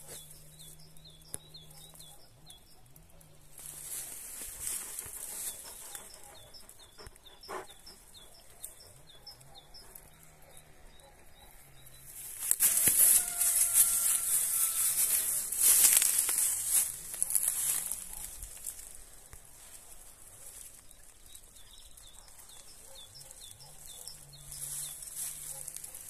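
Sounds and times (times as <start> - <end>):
dry reeds rustling: 3.5 - 9.0, 12.0 - 26.0.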